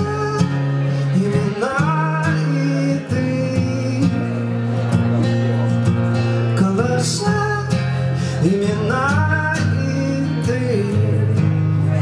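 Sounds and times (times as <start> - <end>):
man singing: 0.0 - 4.9, 6.1 - 12.0
acoustic guitar strumming: 0.0 - 12.0.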